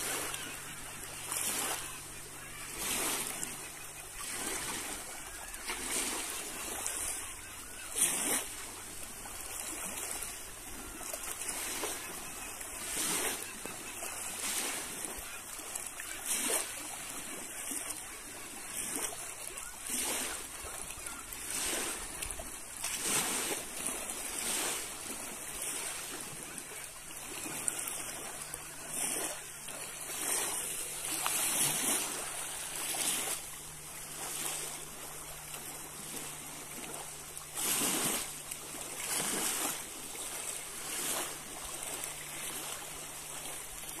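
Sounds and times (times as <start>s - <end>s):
small waves lapping on stones: 0.0s - 44.0s
steady rush of water: 0.0s - 44.0s.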